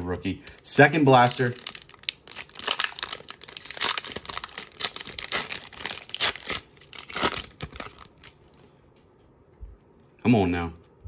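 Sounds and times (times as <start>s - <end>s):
foil wrapper tearing and crinkling: 0.4s - 8.4s.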